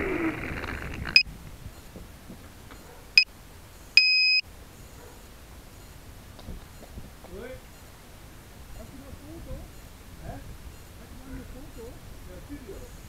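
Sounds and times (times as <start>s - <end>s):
high electronic beeps: 4.0s - 4.4s.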